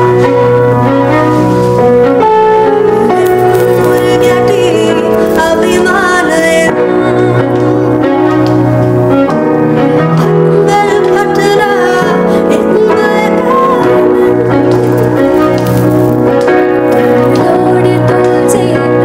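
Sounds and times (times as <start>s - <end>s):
instrumental backing: 0.0s - 19.0s
women singing: 3.9s - 7.5s, 10.5s - 14.7s, 17.2s - 19.0s.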